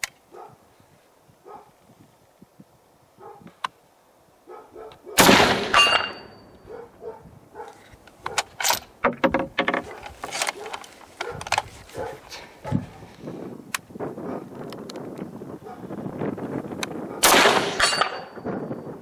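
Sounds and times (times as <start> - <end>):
rifle shot: 5.2 - 6.4, 17.2 - 18.4
small knocks and rustles: 7.6 - 13.0.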